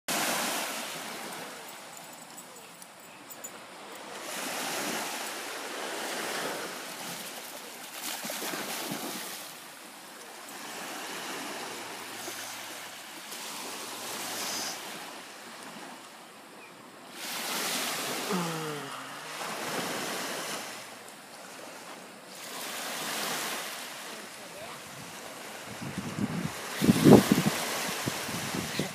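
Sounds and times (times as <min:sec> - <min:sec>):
small waves washing onto beach: 0:00.1 - 0:28.9
wind on microphone: 0:24.8 - 0:28.9.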